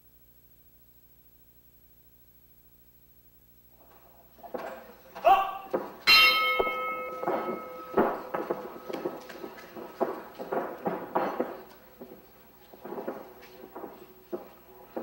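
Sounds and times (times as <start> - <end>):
ringing metallic strike: 6.1 - 9.9.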